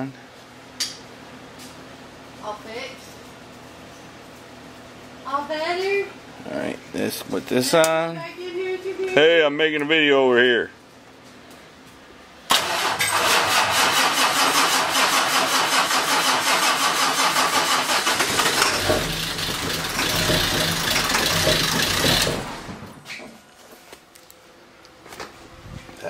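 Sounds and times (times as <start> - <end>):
diesel engine cranking: 12.5 - 23.0.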